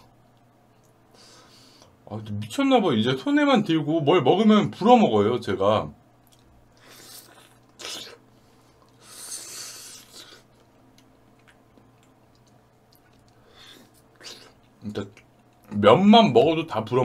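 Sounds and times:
puffs of breath: 0:01.1 - 0:02.0, 0:08.3 - 0:10.5
wet chewing clicks: 0:09.9 - 0:15.7.

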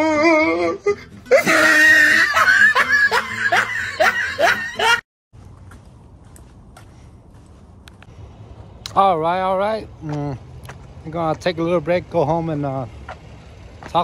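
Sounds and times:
wavering drawn-out voice: 0:00.0 - 0:02.3
person laughing: 0:00.0 - 0:05.0.

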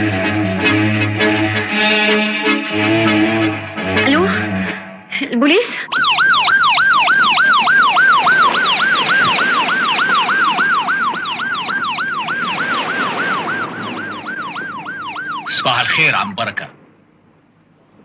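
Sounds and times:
police siren yelping: 0:05.8 - 0:16.4.

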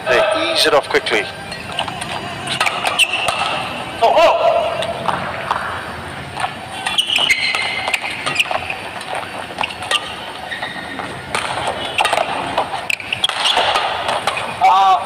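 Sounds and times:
shoes squeaking on court: 0:00.6 - 0:04.0, 0:04.6 - 0:14.6
badminton racket hitting shuttlecock: 0:01.6 - 0:03.9, 0:11.3 - 0:14.7.

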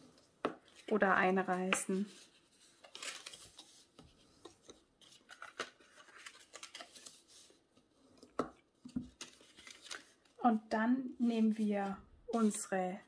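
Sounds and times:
paper scraping and crackling: 0:00.7 - 0:07.6.

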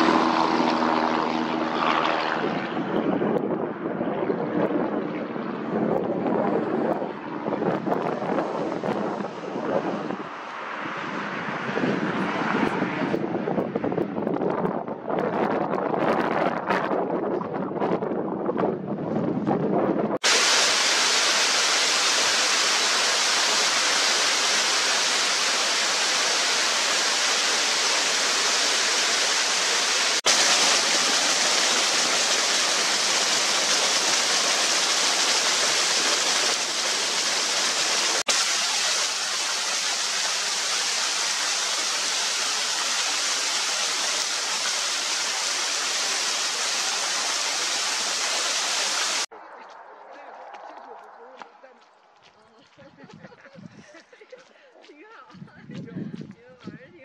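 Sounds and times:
small waterfall rushing: 0:00.0 - 0:01.3, 0:20.2 - 0:49.3.

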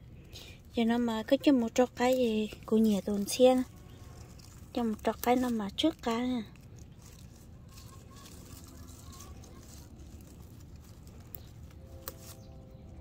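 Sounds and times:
rustling of leaves: 0:00.0 - 0:13.0
small snaps of leaves: 0:04.0 - 0:12.5.

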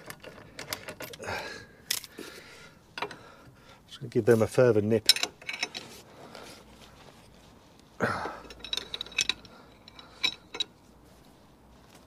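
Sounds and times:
spanner metallic clicks and clinks: 0:05.0 - 0:05.9, 0:08.4 - 0:10.8.

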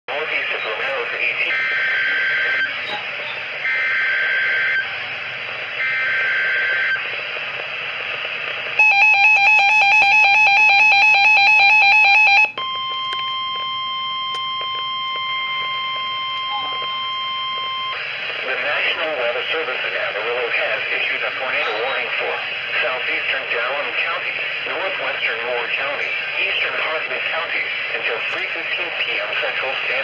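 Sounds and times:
radio hiss: 0:00.1 - 0:08.9, 0:15.4 - 0:30.0
steady warning tone: 0:00.2 - 0:07.4, 0:08.2 - 0:30.0
rapid alarm beeping: 0:00.4 - 0:20.0.

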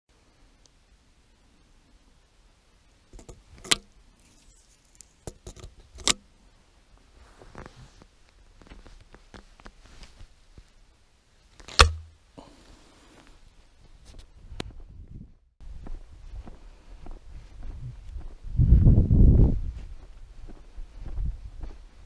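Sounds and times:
shotgun action snapping shut: 0:11.6 - 0:12.1
shotgun metallic clicks: 0:11.6 - 0:12.1.

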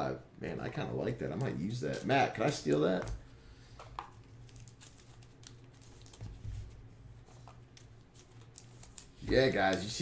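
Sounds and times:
trading cards rustling: 0:01.4 - 0:10.0.

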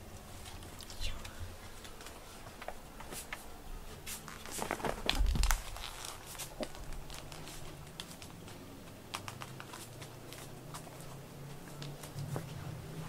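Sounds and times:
rustling and crinkling: 0:00.0 - 0:13.0.

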